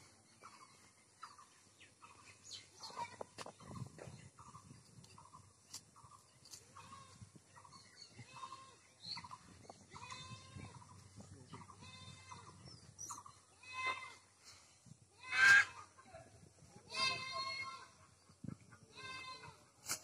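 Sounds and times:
faint goat bleating: 0:09.9 - 0:12.6, 0:18.8 - 0:19.6.

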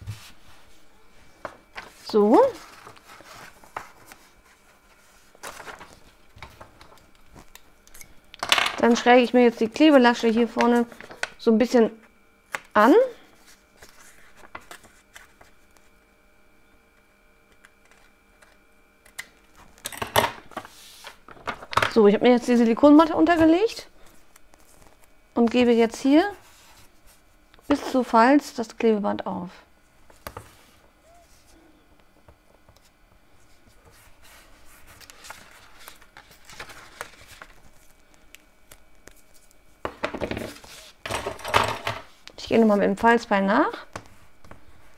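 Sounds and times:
paper rustling and crinkling: 0:01.4 - 0:08.1, 0:13.4 - 0:16.0, 0:20.6 - 0:21.9, 0:22.5 - 0:25.6, 0:33.4 - 0:41.0.

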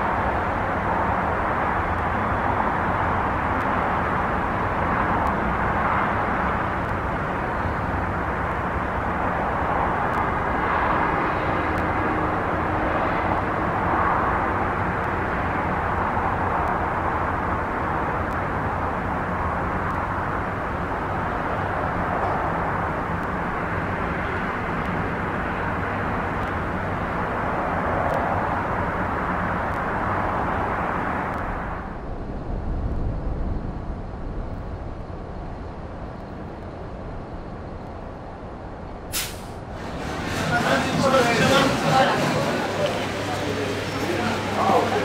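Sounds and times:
urban traffic roar: 0:00.0 - 0:45.0
low rumble: 0:31.3 - 0:41.2.

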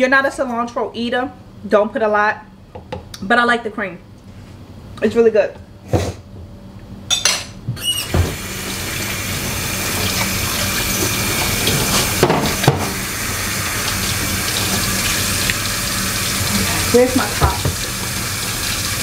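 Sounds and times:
tap running into a sink: 0:09.9 - 0:13.1, 0:13.8 - 0:16.5, 0:17.2 - 0:18.9
dishes knocking: 0:11.7 - 0:13.0.

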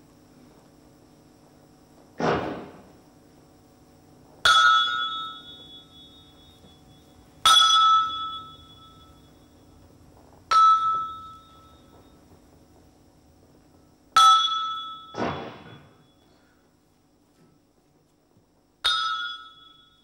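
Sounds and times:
hammer striking ringing metal: 0:04.4 - 0:09.5, 0:10.5 - 0:12.2, 0:14.2 - 0:16.2, 0:18.8 - 0:20.0.

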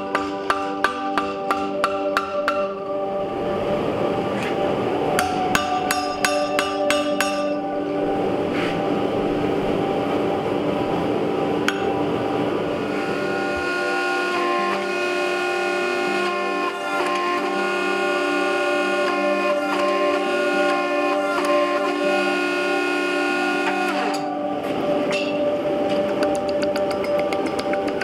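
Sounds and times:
hammer ringing on steel anvil: 0:00.0 - 0:02.9, 0:05.2 - 0:07.7
background music with held notes: 0:00.0 - 0:28.0.

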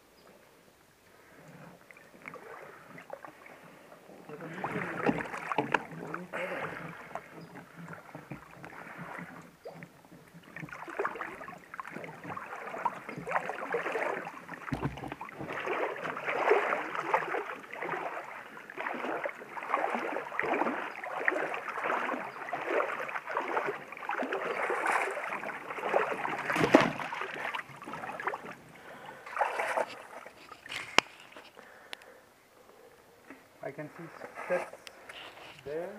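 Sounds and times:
water splashing around wading legs: 0:01.8 - 0:31.5
sharp knock: 0:14.7 - 0:15.2.

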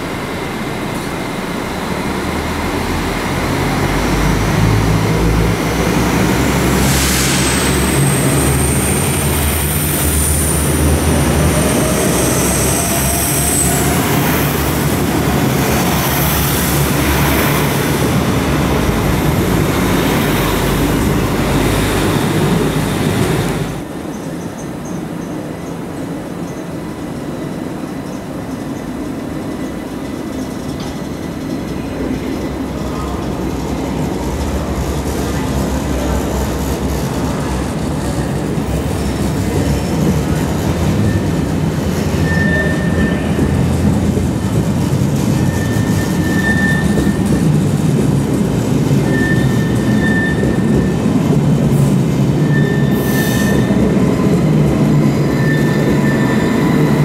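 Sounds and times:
train carriages rumbling past: 0:00.0 - 0:57.0
short high-pitched squeals: 0:42.2 - 0:43.4, 0:45.4 - 0:47.3, 0:52.4 - 0:53.8.

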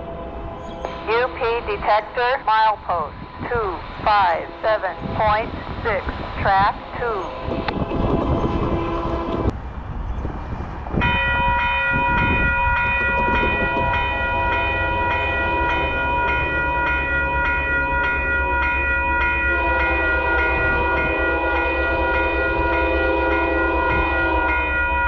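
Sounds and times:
locomotive horn chord: 0:00.0 - 0:03.0, 0:04.2 - 0:09.5, 0:14.1 - 0:25.0
train rumbling: 0:00.0 - 0:25.0.

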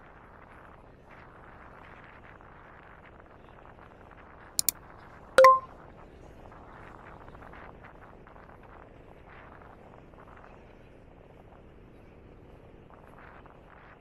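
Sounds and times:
faint steady background: 0:05.4 - 0:05.7.

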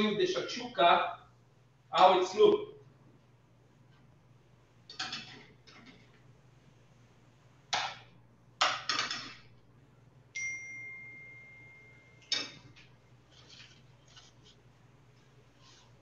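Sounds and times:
dishes and utensils clattering: 0:04.9 - 0:06.0
metallic ringing ding: 0:10.4 - 0:12.6.

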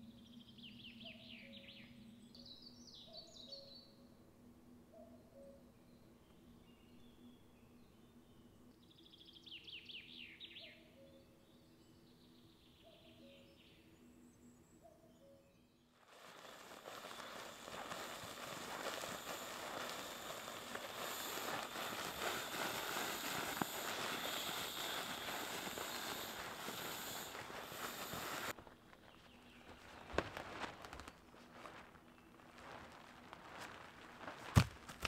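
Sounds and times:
sleeping pad fabric crinkling: 0:16.0 - 0:35.0.

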